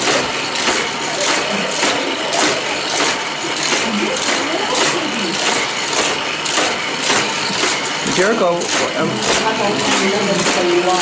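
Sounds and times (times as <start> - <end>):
toy race track whirring: 0.0 - 11.0.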